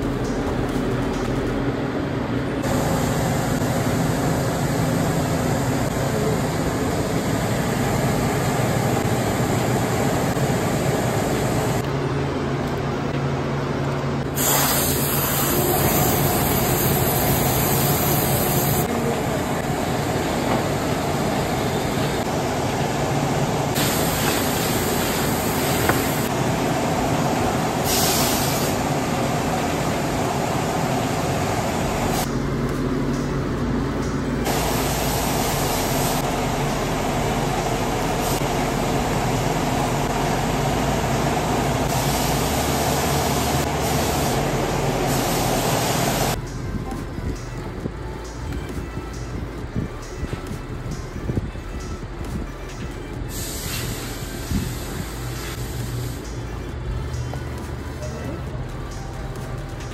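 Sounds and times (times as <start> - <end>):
workshop machinery drone: 0.0 - 59.9
spray gun hissing: 14.4 - 18.9, 23.8 - 26.3, 27.8 - 28.8.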